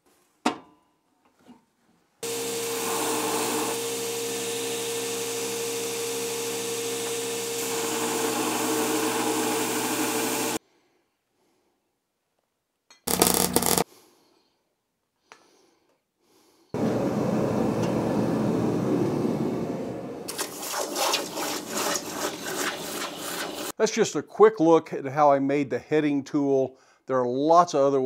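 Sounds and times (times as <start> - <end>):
belt grinder humming: 2.2 - 10.6, 13.1 - 13.8
steel grinding on belt: 13.1 - 13.8, 20.3 - 23.7.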